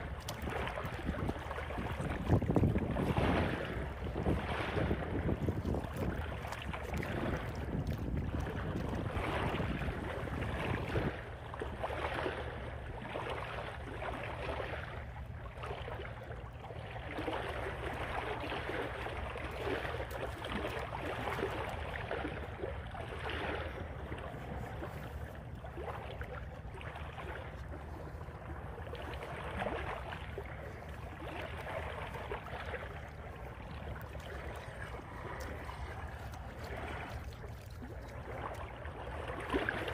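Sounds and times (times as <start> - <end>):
wind rumbling on microphone: 0.0 - 13.4, 19.5 - 39.9
small waves washing on shore: 0.0 - 39.9.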